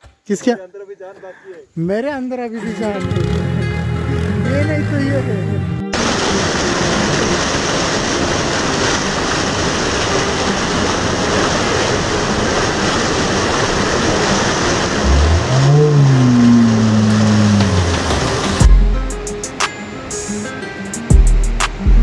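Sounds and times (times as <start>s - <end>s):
waterfall splashing over rocks: 5.9s - 18.8s.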